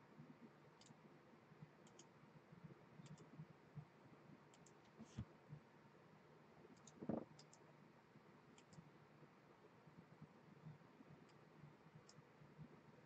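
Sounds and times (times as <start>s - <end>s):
computer mouse clicks: 0.7s - 1.0s, 1.8s - 2.2s, 3.0s - 3.9s, 4.5s - 5.3s, 6.7s - 7.7s, 8.5s - 8.9s, 11.2s - 12.3s.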